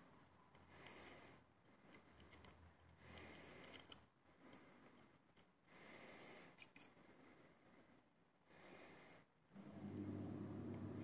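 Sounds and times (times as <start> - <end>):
lock picking clicks and scraping: 1.9 - 5.5, 6.5 - 7.0.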